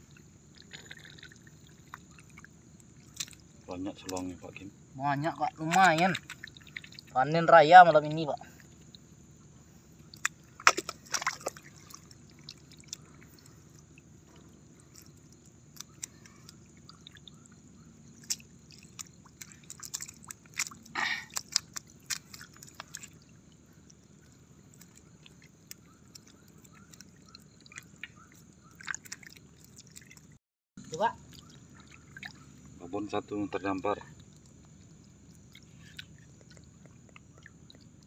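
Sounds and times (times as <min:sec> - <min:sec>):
fish flapping on wet mud: 0:05.6 - 0:07.2, 0:10.1 - 0:13.5, 0:18.1 - 0:23.3, 0:24.0 - 0:30.4.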